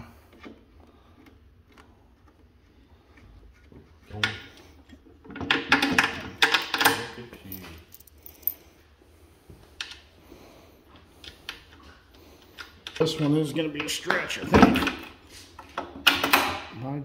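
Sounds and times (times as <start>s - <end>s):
metal hardware clinking in hand: 6.8s - 8.7s.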